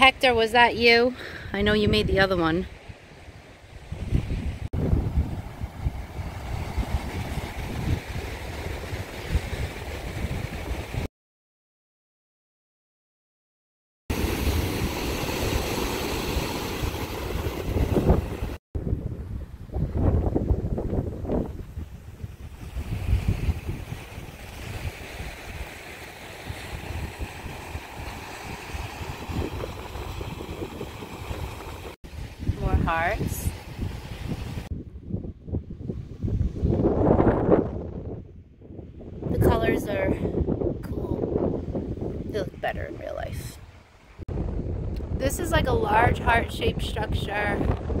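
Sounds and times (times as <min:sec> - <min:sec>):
wind buffeting microphone: 0:00.3 - 0:11.1, 0:14.1 - 0:48.0
waves breaking on rocky beach: 0:14.1 - 0:18.6, 0:22.4 - 0:34.7
waves washing over rocky shore: 0:14.1 - 0:18.6.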